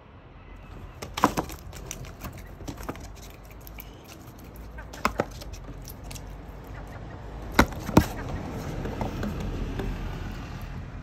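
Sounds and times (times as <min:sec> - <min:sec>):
beak knocking on plastic tub: 0:07.6 - 0:10.2.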